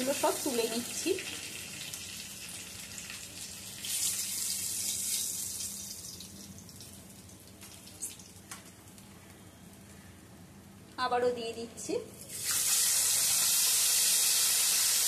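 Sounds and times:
oil sizzling in a wok: 0.0 - 8.4, 12.2 - 15.0.

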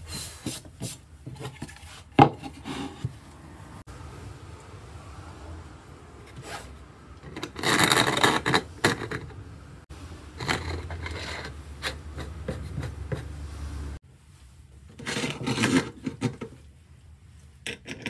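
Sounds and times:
scraping and rubbing on wood: 6.3 - 9.4, 10.3 - 13.5, 14.9 - 16.7.

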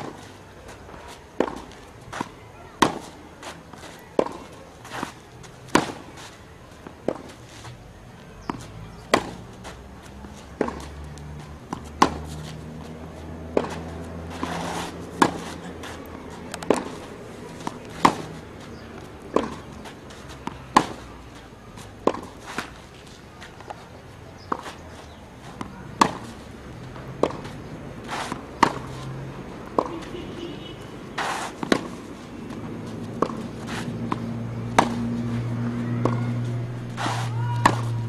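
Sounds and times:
footsteps: 0.0 - 23.9, 31.2 - 38.0
tennis ball struck by racquet: 1.0 - 6.2, 6.9 - 7.4, 8.3 - 21.1, 21.8 - 22.9, 25.5 - 30.2, 31.2 - 38.0
ball bouncing: 10.2 - 12.4, 13.4 - 17.0, 17.6 - 19.8, 31.6 - 38.0.

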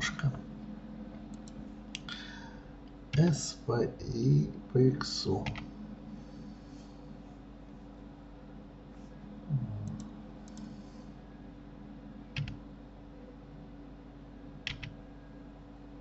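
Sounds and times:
steady low hum: 0.0 - 16.0
keyboard and mouse clicks: 12.4 - 12.6, 14.7 - 14.9.

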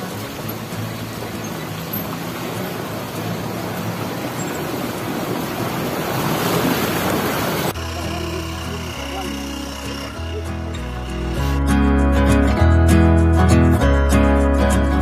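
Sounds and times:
splashing water: 0.0 - 10.4
jeep engines driving: 0.0 - 12.0.

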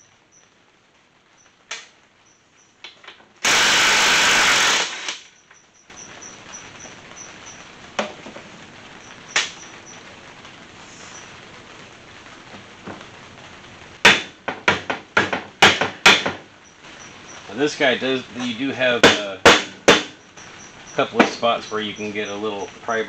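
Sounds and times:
steady hiss: 0.0 - 23.0
cordless drill spinning: 3.5 - 5.2.

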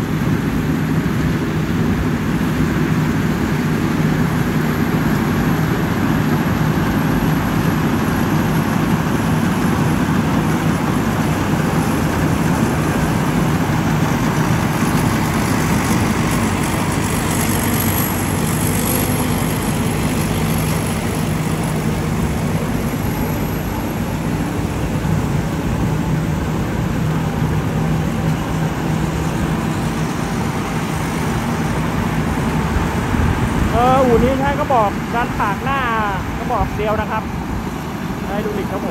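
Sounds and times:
diesel engine drone: 0.0 - 38.9
cutting and threshing machinery: 5.3 - 35.6.

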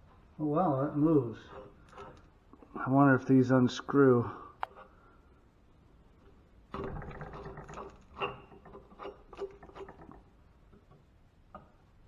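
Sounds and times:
rusty metal caps scraping and clicking: 1.4 - 2.3, 6.8 - 10.2.

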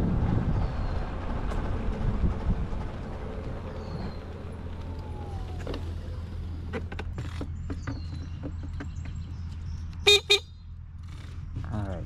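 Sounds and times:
wind buffeting microphone: 0.0 - 6.3
bike tyre rumble on pavement: 0.0 - 9.9.

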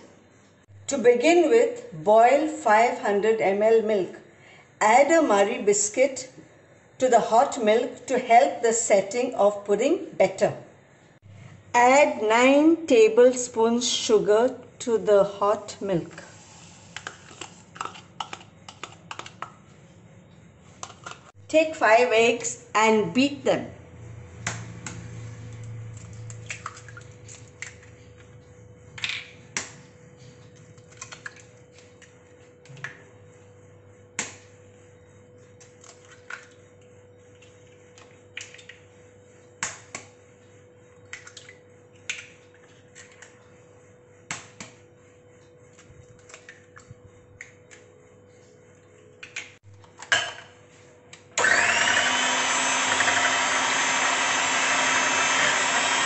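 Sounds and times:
electric hand mixer running: 51.4 - 56.0.

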